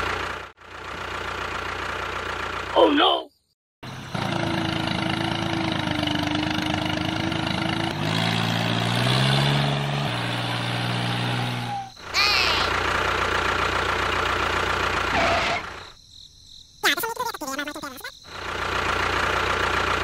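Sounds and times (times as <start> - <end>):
tractor engine idling: 0.0 - 3.0, 3.8 - 8.1, 11.9 - 15.9, 18.3 - 20.0.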